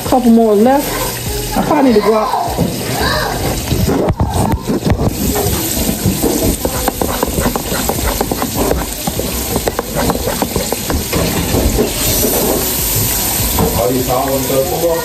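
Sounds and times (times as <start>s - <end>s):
spatula scraping metal bowl: 4.7s - 12.6s.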